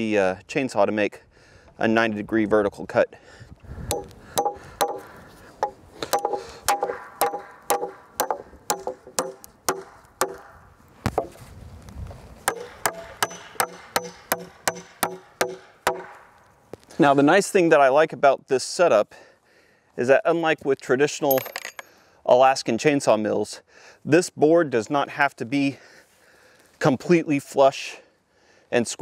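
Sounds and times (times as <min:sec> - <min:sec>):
hammer striking nails into wood: 0:03.9 - 0:10.5, 0:12.4 - 0:16.3.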